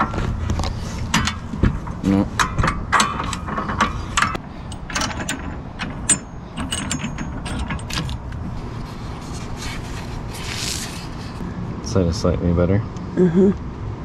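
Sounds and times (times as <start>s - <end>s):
metal clamp clicks and rattles: 2.4s - 8.4s.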